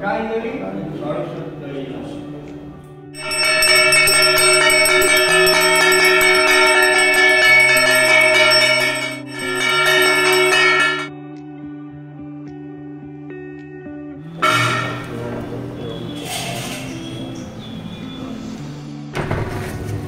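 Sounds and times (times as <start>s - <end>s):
quiet background music: 0.0s - 8.2s, 11.1s - 20.0s
bell ringing continuously: 3.2s - 11.1s, 14.4s - 15.2s.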